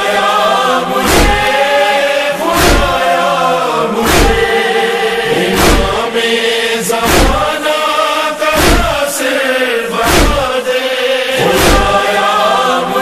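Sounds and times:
male chorus chanting: 0:00.0 - 0:13.0
deep thump: 0:01.0 - 0:01.5, 0:02.6 - 0:03.0, 0:04.0 - 0:04.5, 0:05.6 - 0:06.0, 0:07.0 - 0:07.5, 0:08.6 - 0:09.0, 0:10.0 - 0:10.5, 0:11.5 - 0:12.0.

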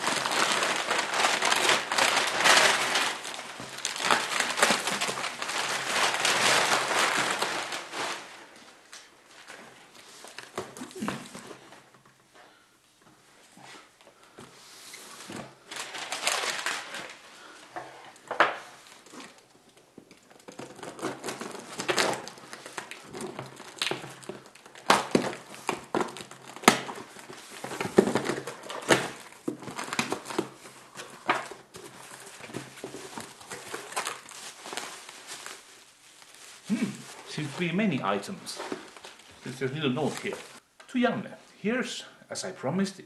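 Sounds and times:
packing tape tearing: 0:00.0 - 0:08.3, 0:15.7 - 0:17.2, 0:18.8 - 0:37.6
packing material crinkling: 0:00.0 - 0:12.2, 0:14.1 - 0:41.0.

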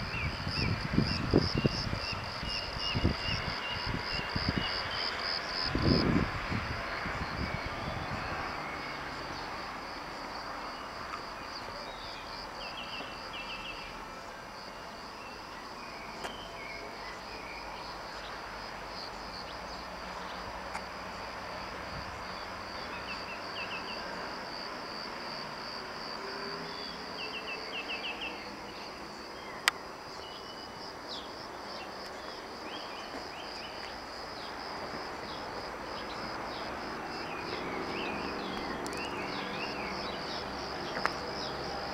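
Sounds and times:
crickets chirping: 0:00.0 - 0:41.9.

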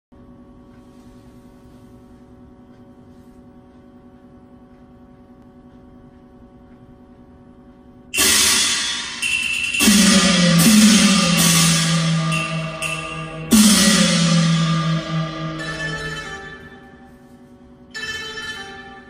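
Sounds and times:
electrical hum: 0:00.2 - 0:19.0
music with percussion crash: 0:08.2 - 0:17.1.

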